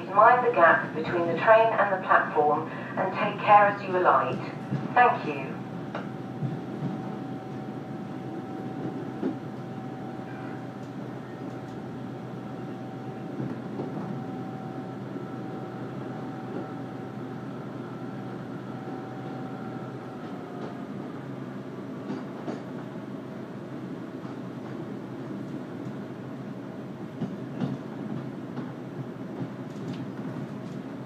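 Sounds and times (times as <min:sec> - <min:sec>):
diesel train rumble: 0:00.0 - 0:31.0
faint clicks from track: 0:29.4 - 0:30.8.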